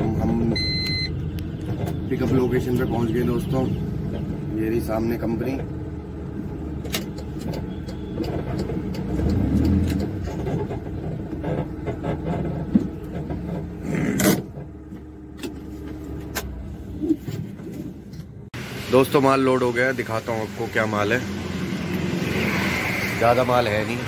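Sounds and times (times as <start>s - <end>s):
truck engine and road rumble: 0.0s - 24.0s
clicks and rattles in cab: 0.6s - 3.0s, 6.4s - 18.4s.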